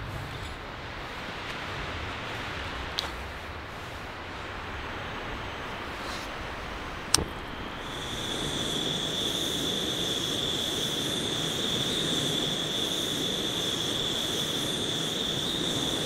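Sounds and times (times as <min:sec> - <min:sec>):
gas stove burner hissing: 0:04.3 - 0:16.0.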